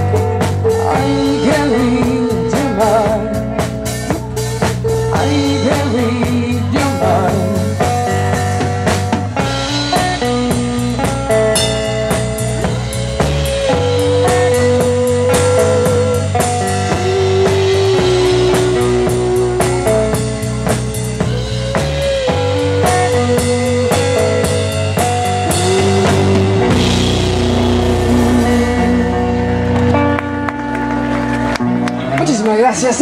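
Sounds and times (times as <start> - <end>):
drum kit: 0.0 - 31.6
electric bass: 0.0 - 33.0
electric guitar: 0.0 - 33.0
woman singing: 0.8 - 3.6, 5.2 - 7.8.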